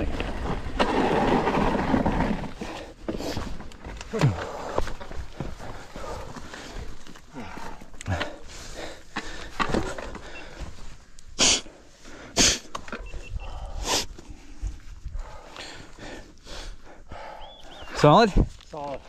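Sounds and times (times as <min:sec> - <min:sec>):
person breathing hard: 0:04.1 - 0:17.8.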